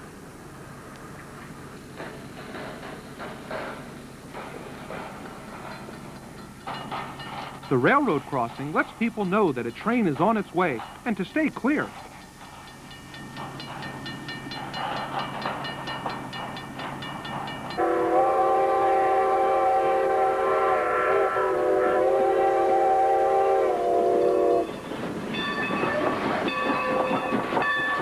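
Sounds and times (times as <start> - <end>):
train rumbling and clattering past: 0.0 - 28.0
crossing bell dinging: 5.7 - 10.8, 11.7 - 18.0, 24.2 - 28.0
steam locomotive chime whistle: 17.5 - 28.0.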